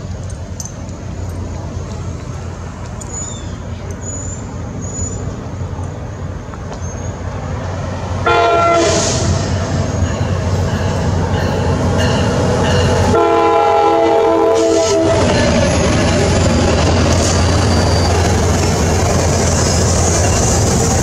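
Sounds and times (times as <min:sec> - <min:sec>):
train engine rumble: 0:00.0 - 0:21.0
train horn blasts: 0:08.2 - 0:09.5, 0:12.9 - 0:15.4.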